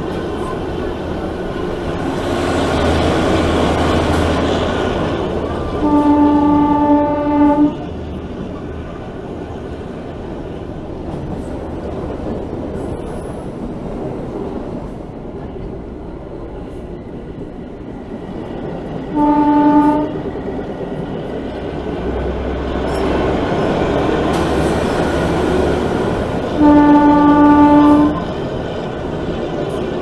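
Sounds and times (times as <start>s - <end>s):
train wheels and engine rumbling: 0.0s - 30.0s
train horn blast: 5.8s - 7.9s, 19.1s - 20.2s, 26.5s - 28.2s.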